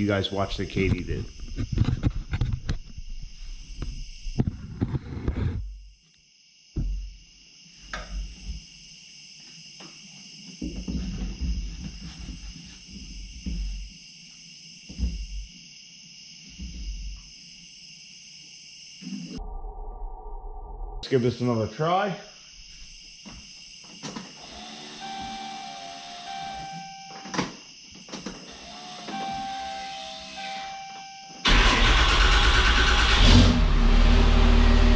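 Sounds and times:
katydid buzzing trill: 22.3s - 31.5s.

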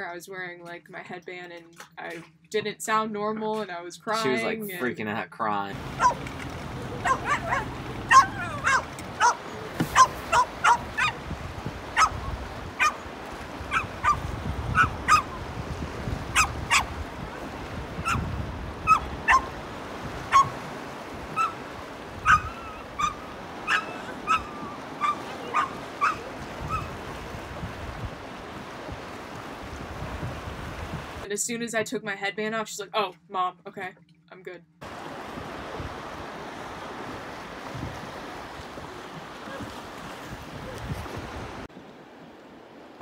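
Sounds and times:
dog barking and yelping: 5.9s - 11.2s, 11.9s - 13.0s, 13.7s - 15.4s, 16.3s - 16.9s, 18.0s - 19.6s, 20.3s - 20.6s, 21.4s - 21.6s, 22.2s - 26.9s.

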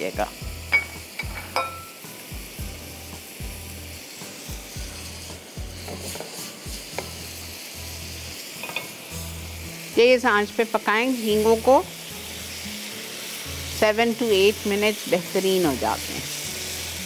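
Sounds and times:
prawns sizzling in oil: 0.0s - 17.0s
spatula scraping pan: 4.9s - 7.2s.

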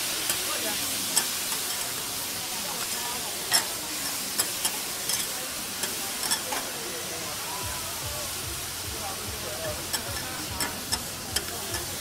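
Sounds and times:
food sizzling on a griddle: 0.0s - 12.0s
metal spatula scraping: 2.8s - 6.7s.

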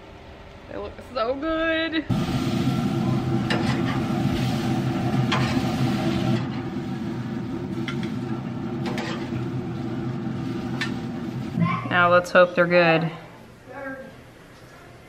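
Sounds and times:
steaks sizzling on a grill: 2.1s - 11.6s.

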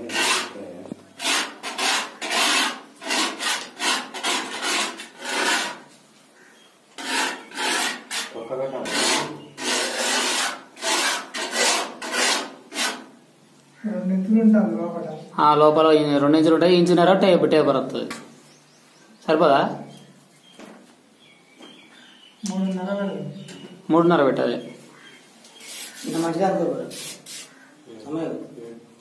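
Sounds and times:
trowel scraping wet plaster: 1.2s - 5.9s, 7.0s - 13.1s.

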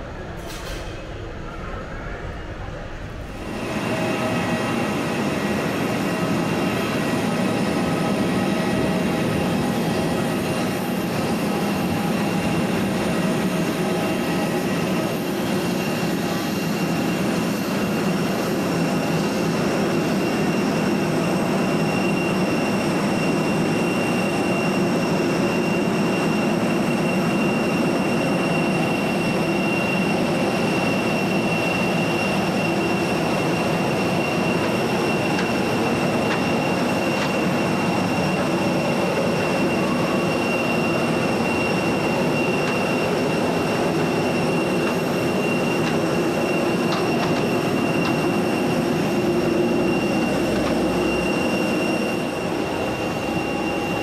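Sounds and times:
aircraft turbine rumble and whine: 0.0s - 54.0s.

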